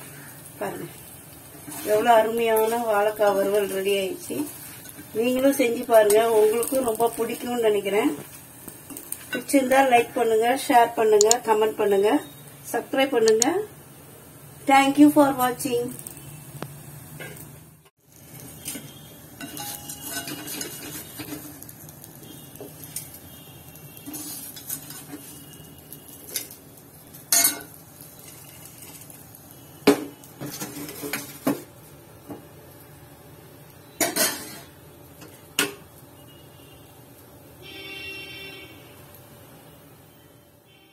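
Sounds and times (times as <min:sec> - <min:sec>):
metal ladle scraping a pan: 0:18.7 - 0:21.5, 0:24.0 - 0:25.5.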